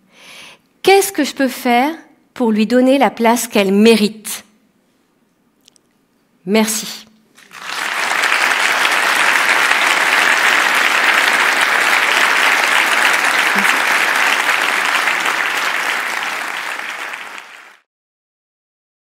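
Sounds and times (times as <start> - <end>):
audience applauding: 7.4 - 17.9.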